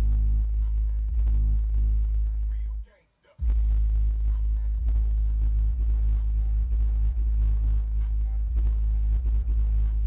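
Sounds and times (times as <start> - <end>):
subwoofer playing deep bass: 0.0 - 10.0.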